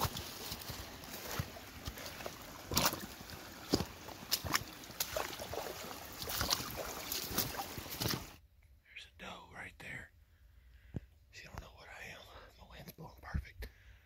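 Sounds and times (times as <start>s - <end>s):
footsteps sloshing through water: 0.0s - 8.4s.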